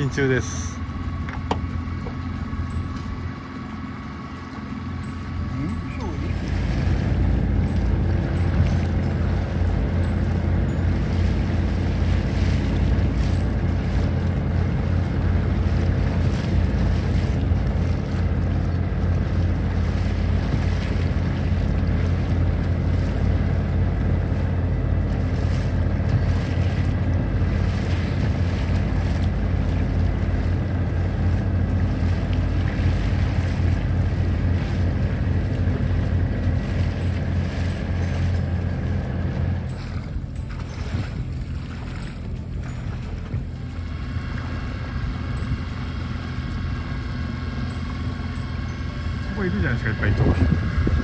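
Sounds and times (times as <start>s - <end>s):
boat engine running: 0.0s - 51.0s
water rushing past hull: 0.0s - 51.0s
wind noise on microphone: 42.7s - 47.6s, 48.2s - 51.0s.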